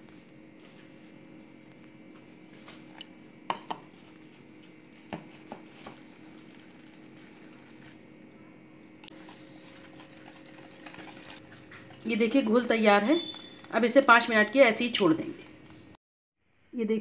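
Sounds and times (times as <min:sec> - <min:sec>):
whisk stirring batter: 0:09.1 - 0:13.0.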